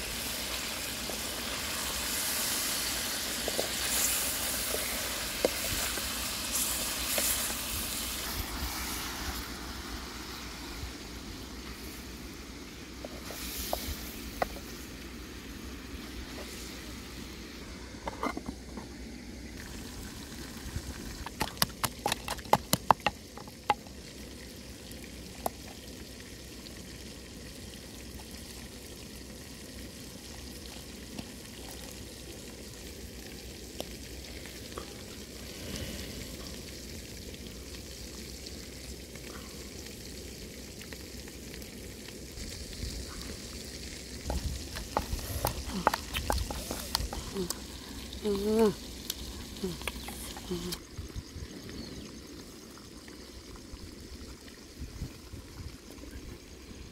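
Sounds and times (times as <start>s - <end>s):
steady hiss: 0.0s - 22.1s, 28.7s - 56.9s
pestle knocking in wooden mortar: 21.3s - 23.5s.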